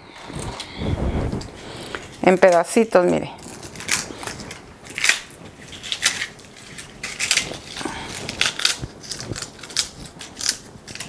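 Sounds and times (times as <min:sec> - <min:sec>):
crisp fritters crackling as broken: 0:03.4 - 0:11.0.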